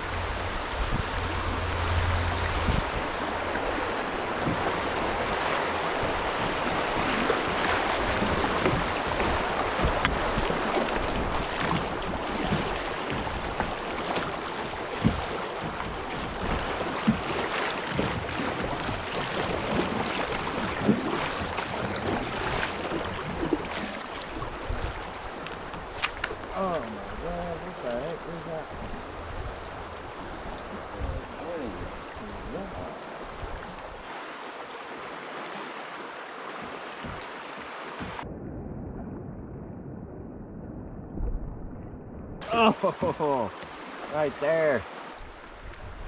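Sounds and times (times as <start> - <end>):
creek water rushing: 0.0 - 38.2, 42.4 - 46.0
paddle splashes: 0.0 - 38.3, 42.4 - 46.0.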